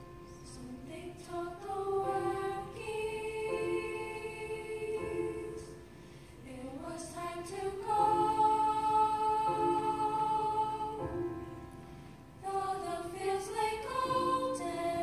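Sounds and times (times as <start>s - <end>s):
children's chorus singing: 0.0s - 5.8s, 6.5s - 11.3s, 12.4s - 15.0s.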